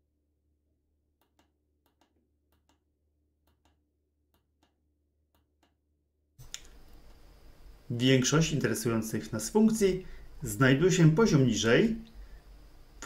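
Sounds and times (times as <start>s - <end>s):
steady hiss: 6.4s - 13.0s.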